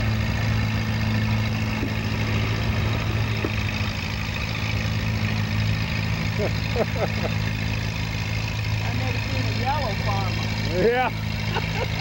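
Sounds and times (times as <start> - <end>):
tractor engine under load: 0.0 - 12.0.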